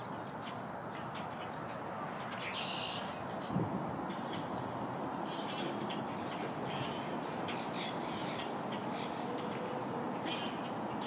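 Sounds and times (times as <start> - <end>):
steady background noise: 0.0 - 11.0
birds calling: 2.2 - 11.0.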